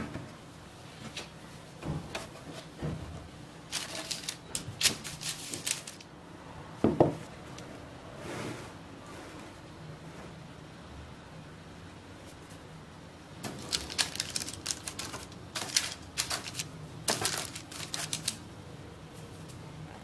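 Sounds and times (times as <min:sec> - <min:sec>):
sharp clicks and rustles: 0:03.7 - 0:06.1, 0:13.4 - 0:18.5.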